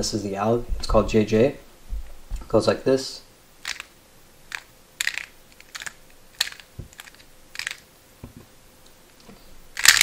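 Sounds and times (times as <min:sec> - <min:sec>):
plastic puzzle clicking: 0:03.6 - 0:03.9, 0:04.5 - 0:07.8, 0:09.8 - 0:10.0.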